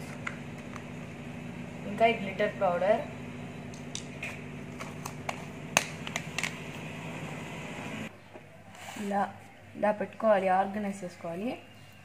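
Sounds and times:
fan-like hum: 0.0 - 12.0.

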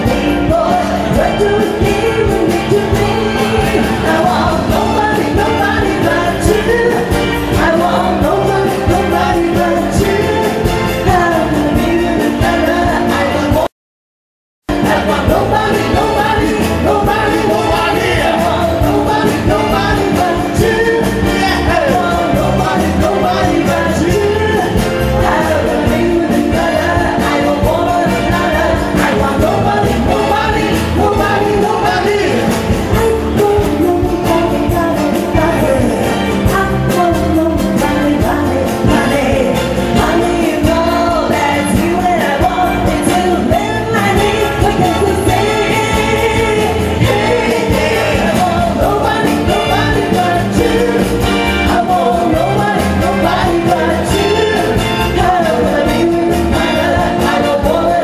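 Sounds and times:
acoustic guitar: 0.0 - 13.7, 14.7 - 58.0
people singing: 0.0 - 13.7, 14.7 - 58.0
keyboard accompaniment: 14.7 - 58.0.

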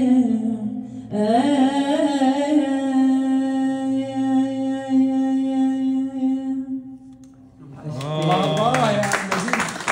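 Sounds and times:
woman singing: 0.0 - 7.1
clapping: 8.0 - 9.9.

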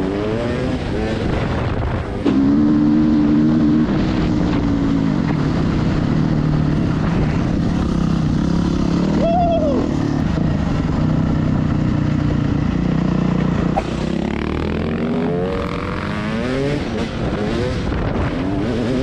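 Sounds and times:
wind noise on microphone: 0.0 - 12.7, 15.4 - 19.0
dirt bike engines revving: 0.0 - 19.0.

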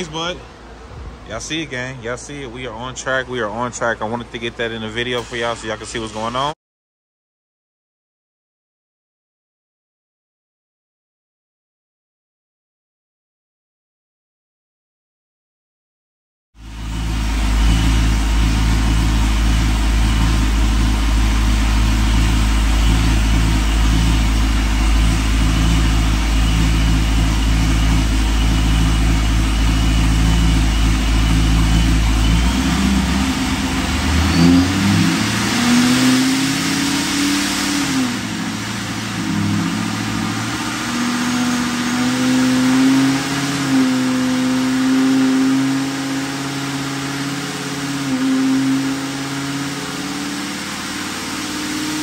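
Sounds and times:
supercharged engine revving: 16.7 - 52.0.

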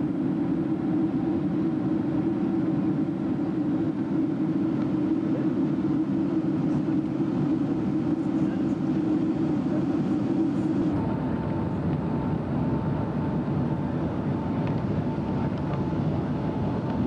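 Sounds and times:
aircraft cabin engine noise: 0.0 - 17.0
lower hum: 0.0 - 17.0.

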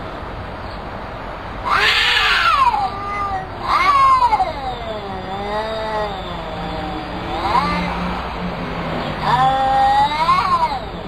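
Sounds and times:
cats yowling: 1.6 - 8.3, 9.0 - 11.0.

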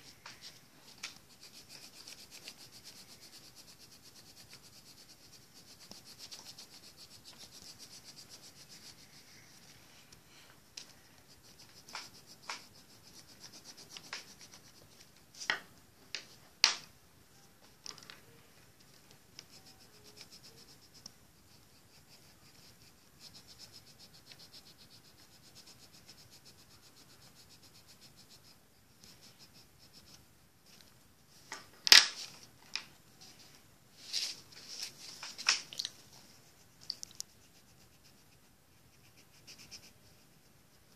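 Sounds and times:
pencil scratching on paper: 0.0 - 9.8, 10.8 - 15.5, 19.4 - 30.9, 36.0 - 40.9.

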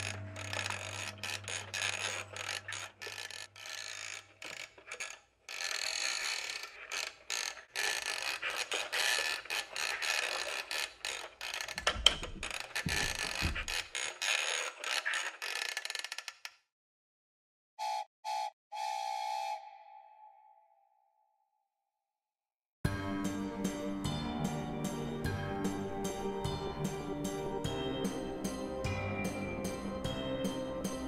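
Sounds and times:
toy mechanism clicking and grinding: 0.0 - 16.7.

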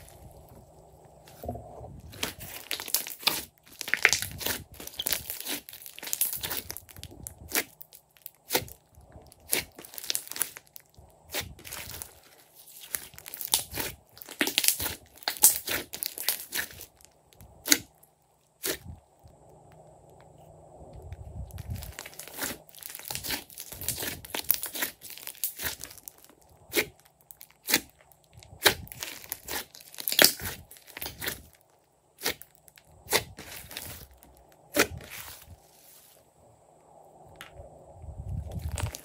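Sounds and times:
slime squishing and popping: 2.1 - 18.0, 21.5 - 35.2.

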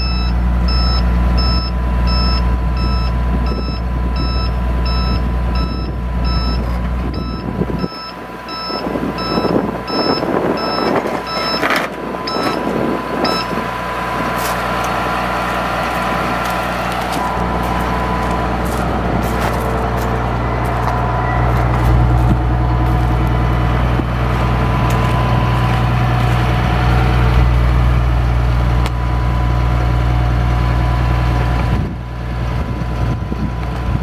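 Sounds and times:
warning alarm beeping: 0.0 - 13.6, 17.2 - 23.0
truck engine humming: 0.0 - 34.0
hydraulic outriggers lowering: 8.0 - 23.4.

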